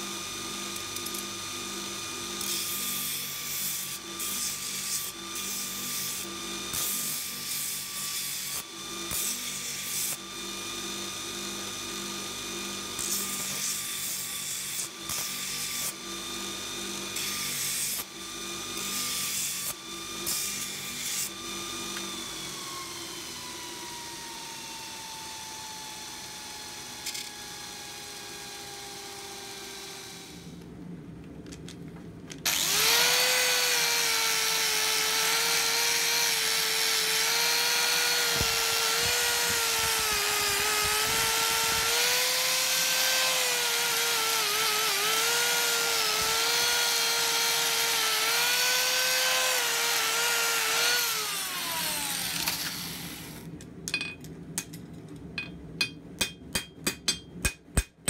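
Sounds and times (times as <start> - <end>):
steel grinding on abrasive belt: 0.0 - 22.1, 32.5 - 53.4
belt grinder motor running: 0.0 - 25.2, 32.5 - 53.5.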